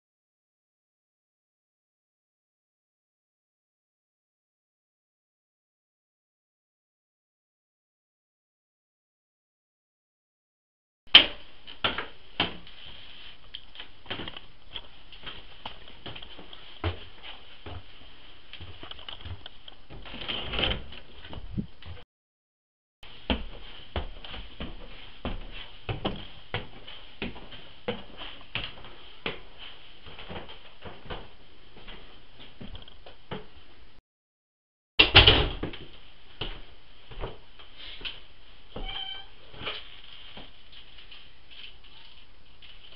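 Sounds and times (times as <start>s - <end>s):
footsteps on wooden stairs: 23.1s - 33.6s.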